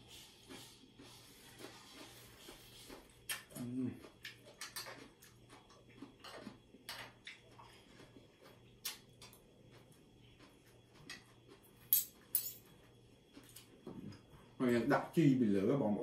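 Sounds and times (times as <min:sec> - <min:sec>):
cutlery clinking on plate: 0:12.0 - 0:12.6.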